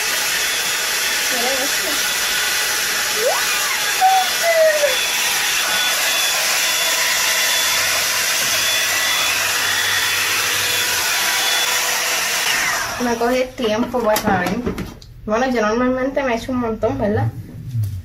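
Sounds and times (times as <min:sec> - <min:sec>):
hot-air brush dryer blowing: 0:00.0 - 0:13.8.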